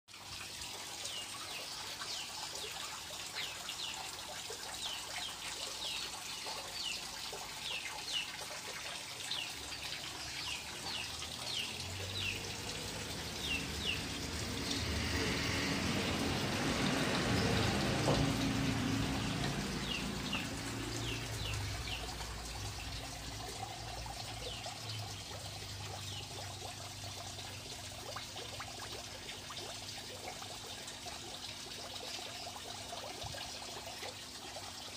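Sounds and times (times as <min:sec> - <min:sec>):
water trickling and draining: 0:00.1 - 0:34.9
birds chirping: 0:09.3 - 0:26.5.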